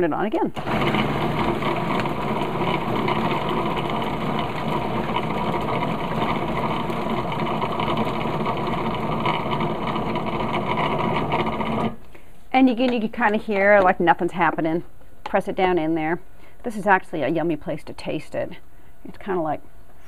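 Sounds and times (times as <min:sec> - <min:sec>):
food processor motor running: 0:00.6 - 0:12.0.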